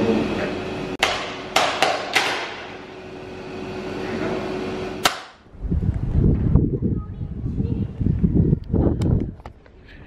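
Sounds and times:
machine hum: 0:00.0 - 0:10.0
wind rumble on microphone: 0:05.5 - 0:10.0.

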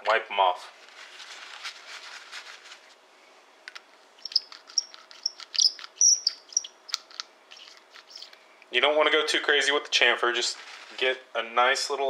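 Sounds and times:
chamfer tool squeaking and clicking: 0:04.2 - 0:08.4.

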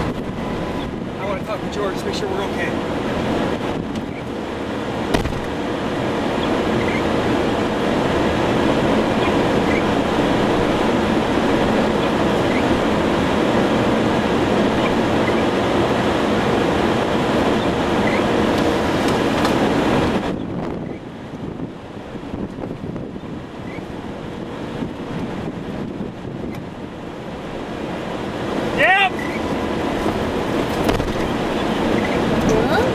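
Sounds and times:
storm wind and rain roar: 0:00.0 - 0:32.9
sharp knock: 0:05.1 - 0:05.5.

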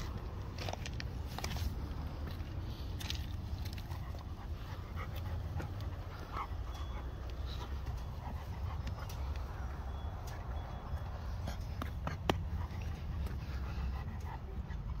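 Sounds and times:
puppy panting and sniffing: 0:00.0 - 0:15.0
steady low rumble: 0:00.0 - 0:15.0.

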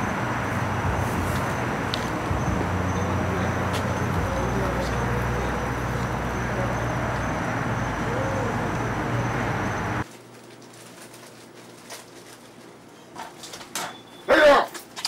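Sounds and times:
low hum: 0:00.0 - 0:10.0.

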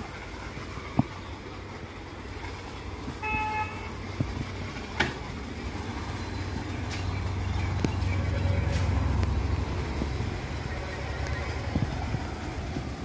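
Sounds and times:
low hum: 0:00.0 - 0:13.0
vehicle horn toot: 0:03.2 - 0:04.0.

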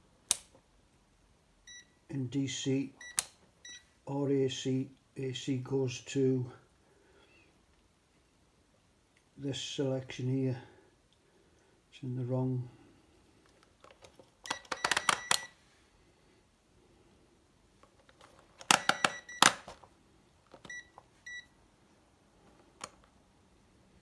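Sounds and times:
multimeter beeping: 0:03.0 - 0:03.8, 0:14.4 - 0:15.6, 0:18.7 - 0:19.6, 0:20.6 - 0:21.5.

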